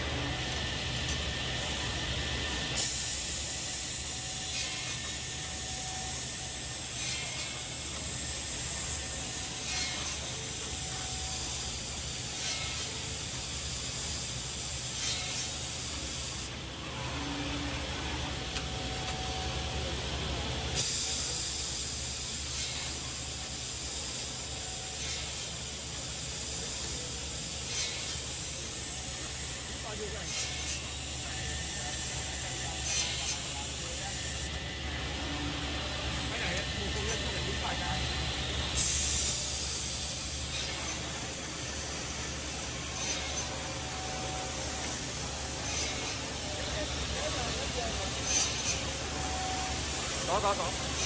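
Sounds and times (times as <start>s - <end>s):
loud air hiss: 1.5s - 16.6s, 20.7s - 34.6s, 36.0s - 51.0s
machine mechanism clacking: 2.8s - 16.5s, 38.8s - 51.0s.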